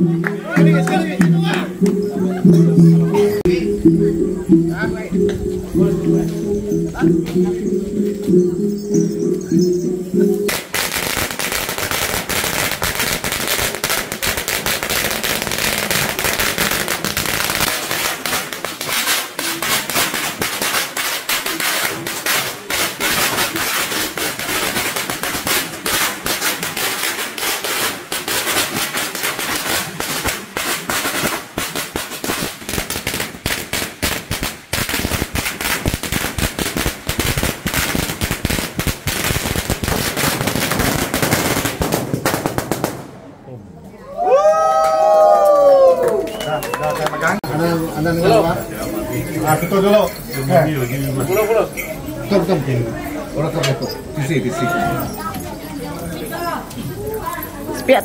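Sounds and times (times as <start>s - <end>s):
firecrackers popping: 10.4s - 43.5s.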